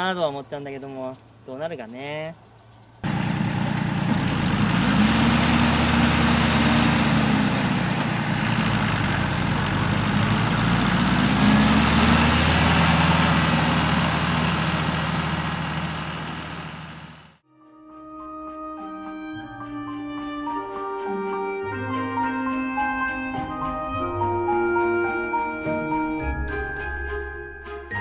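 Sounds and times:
tractor diesel engine running: 2.4s - 17.4s
manure spreader conveyor and beaters: 3.0s - 17.4s.

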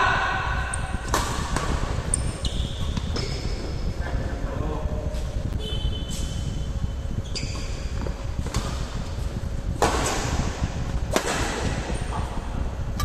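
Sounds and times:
steady low rumble: 0.0s - 13.0s
rackets striking shuttlecock: 0.7s - 3.6s, 9.7s - 12.0s.

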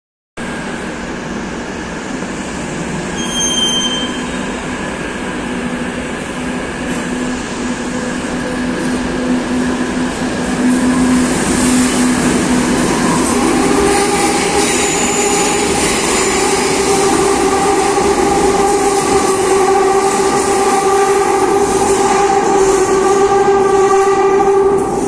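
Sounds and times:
train moving off: 0.5s - 25.0s
electric train humming: 4.1s - 25.0s.

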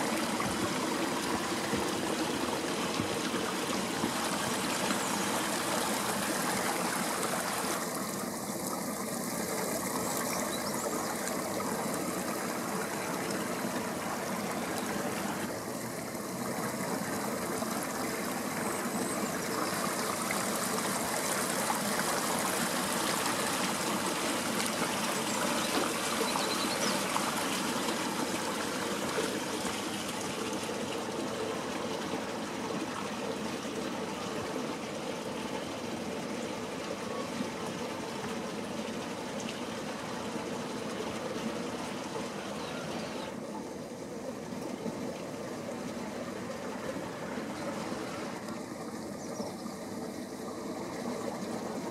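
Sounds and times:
water running through channel: 0.0s - 51.9s.

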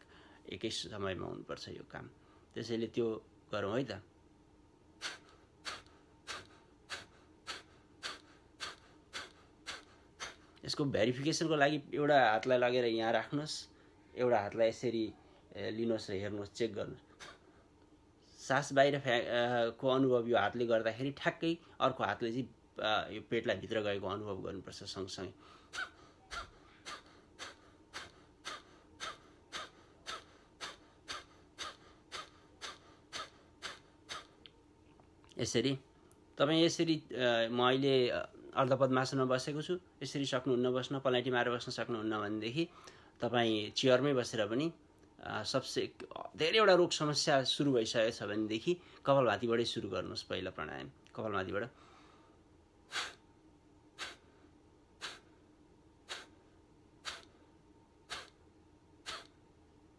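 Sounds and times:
forceful nasal exhalations: 5.0s - 10.6s, 25.4s - 34.4s, 52.9s - 53.2s, 54.0s - 54.4s, 55.0s - 55.4s, 56.0s - 57.4s, 58.0s - 58.4s, 59.0s - 59.4s
man exhaling forcefully through nose: 5.0s - 10.6s, 54.0s - 54.4s, 55.0s - 55.4s, 56.1s - 56.4s, 57.0s - 57.4s, 58.1s - 58.4s, 59.0s - 59.3s.

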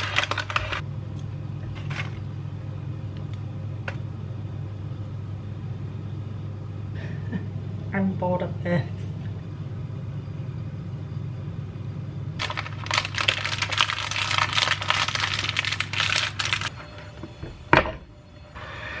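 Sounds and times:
almonds crackling on batter: 0.0s - 0.8s, 12.4s - 16.7s
low steady hum: 0.0s - 19.0s.

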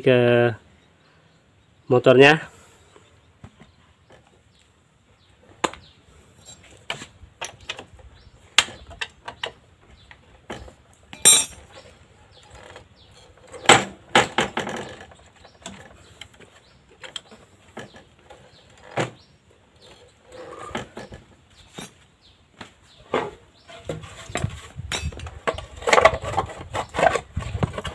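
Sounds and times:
metal rattling scrape: 10.5s - 11.9s, 23.2s - 27.9s.

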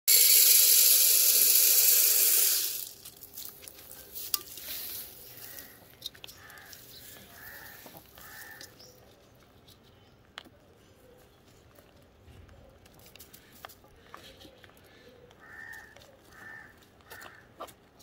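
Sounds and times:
grains poured onto metal pan: 0.1s - 3.6s
rabbits eating clicks and rustles: 2.8s - 18.0s.

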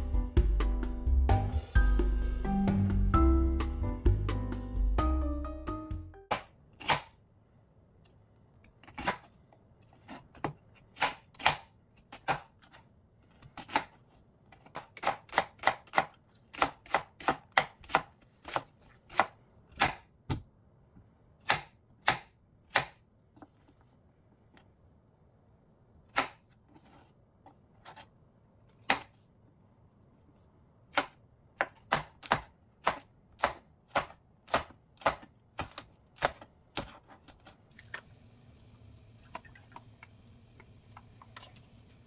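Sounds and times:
background music: 0.0s - 6.4s
knife chopping on cutting board: 10.0s - 12.8s, 13.5s - 20.5s, 28.8s - 29.1s, 30.9s - 37.6s.

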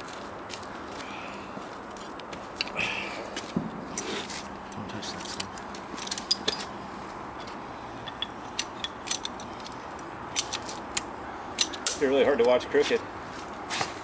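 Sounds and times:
hand tools clinking: 5.0s - 12.6s.

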